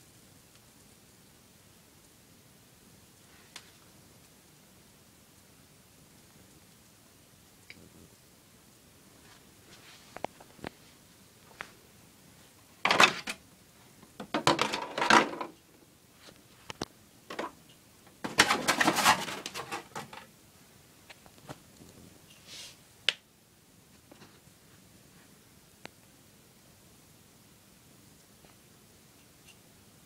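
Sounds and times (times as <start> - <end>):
clattering and rattling handling: 12.8 - 13.4, 14.2 - 15.6, 17.3 - 20.3.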